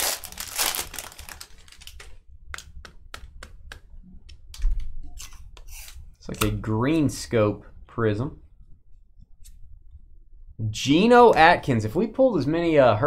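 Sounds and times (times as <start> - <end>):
foil pack crinkling: 0.0 - 2.2.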